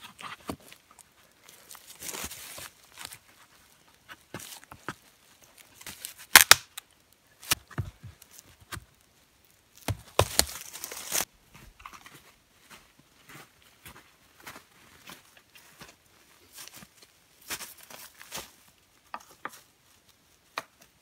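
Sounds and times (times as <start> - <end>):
wood cracking: 5.8 - 6.8, 9.8 - 11.3
wood splintering and tearing: 6.3 - 6.8, 9.8 - 11.3.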